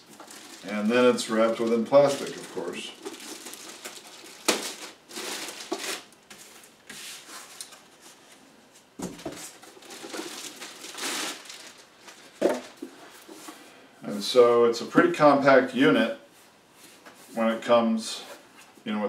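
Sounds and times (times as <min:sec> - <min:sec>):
plastic wrapping crinkling: 0:00.0 - 0:06.8, 0:09.2 - 0:13.4
cardboard packaging handled: 0:00.0 - 0:07.9, 0:09.0 - 0:13.4.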